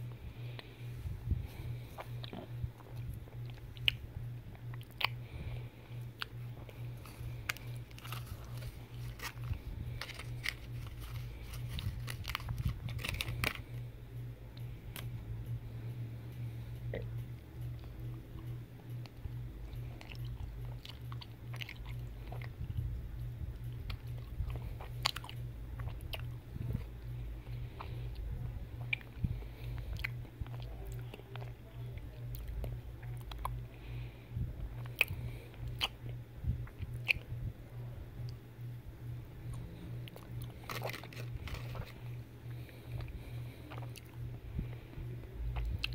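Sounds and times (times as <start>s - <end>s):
steady low hum: 0.0s - 45.9s
biting and chewing chocolate: 0.1s - 15.1s, 16.9s - 37.4s, 39.4s - 45.9s
foil wrapper crinkling: 7.0s - 13.8s, 40.6s - 42.0s.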